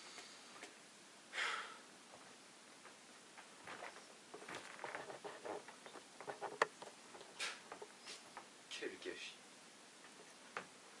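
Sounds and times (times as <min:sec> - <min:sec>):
person sniffing: 0:01.3 - 0:01.8.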